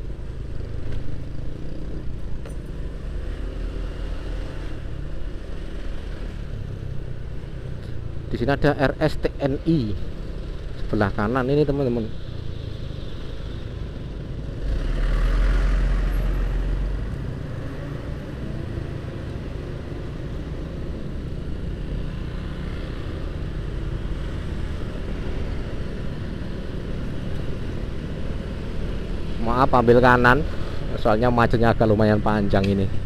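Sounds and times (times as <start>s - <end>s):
surrounding traffic noise: 0.0s - 33.0s.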